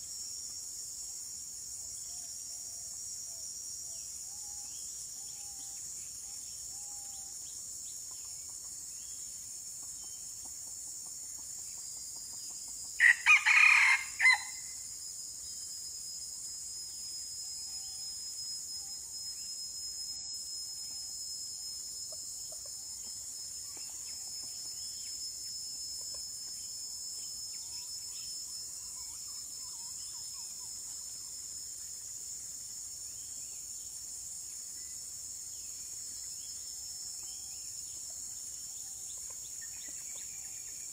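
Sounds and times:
insects hissing: 0.0s - 40.9s
rooster crowing: 13.0s - 14.7s.

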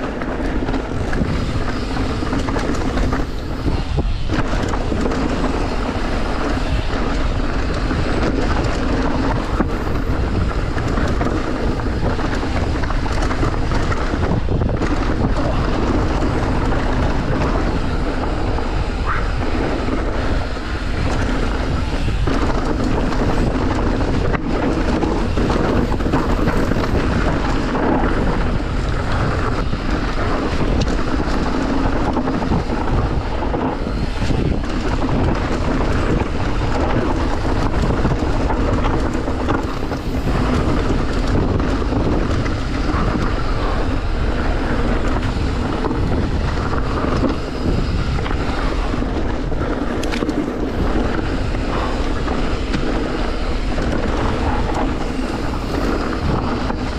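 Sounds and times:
mountain bike rumbling and rattling: 0.0s - 56.9s
wind buffeting microphone: 0.0s - 56.9s.

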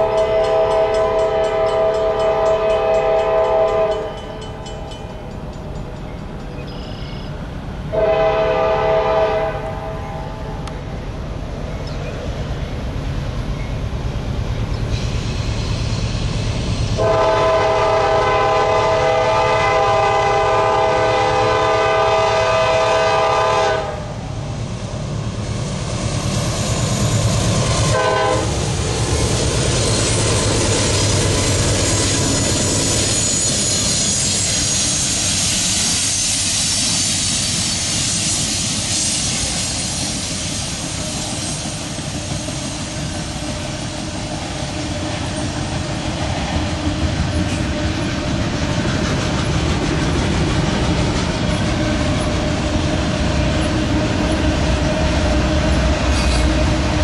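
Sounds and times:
locomotive air horn: 0.0s - 4.3s, 7.9s - 10.5s, 17.0s - 24.2s, 27.9s - 28.6s
train wheels clacking over rail joints: 0.0s - 7.3s, 26.0s - 57.0s
locomotives rumbling past: 0.0s - 57.0s.

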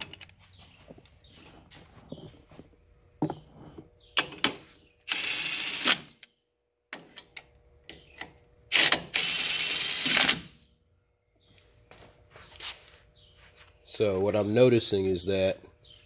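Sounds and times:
impact wrench running: 5.1s - 6.1s, 8.7s - 10.5s.

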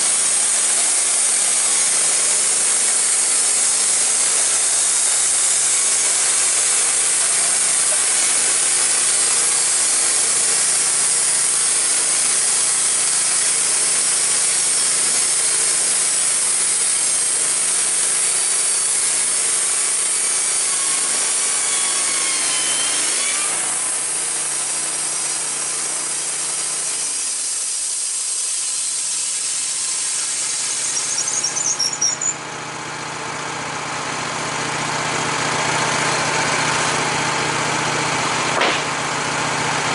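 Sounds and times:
band saw blade hissing: 0.0s - 24.2s, 26.7s - 32.4s
board squeaking sliding off log: 30.4s - 32.4s.

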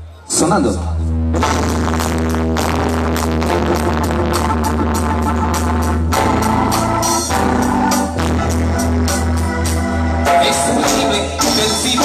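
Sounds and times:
loud dance music: 1.4s - 12.0s.

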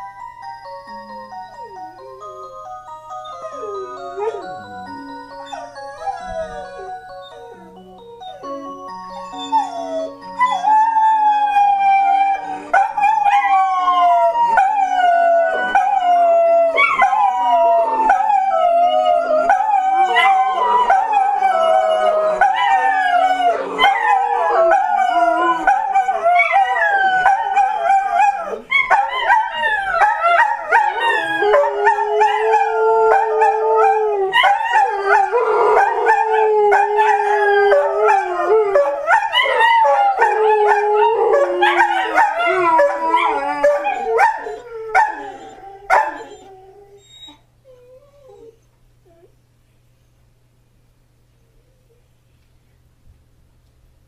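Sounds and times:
clock chime melody: 0.0s - 11.2s
dogs howling: 3.2s - 7.4s, 9.2s - 49.3s.

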